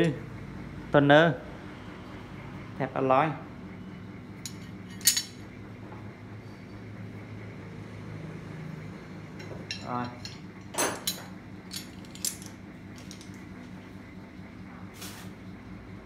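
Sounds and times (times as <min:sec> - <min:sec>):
steady low hum: 0:00.0 - 0:16.0
metal wrenches clinking: 0:04.4 - 0:05.4, 0:09.4 - 0:13.4.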